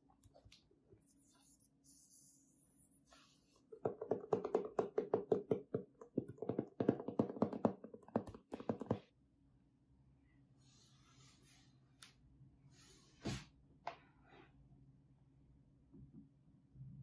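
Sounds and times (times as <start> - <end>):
fingers tapping on cardboard box: 3.8 - 9.1.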